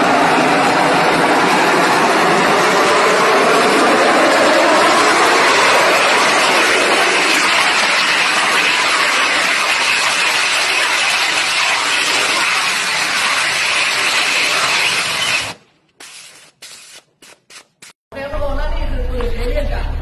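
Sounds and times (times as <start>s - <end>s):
rocket engine rushing: 0.0s - 15.7s.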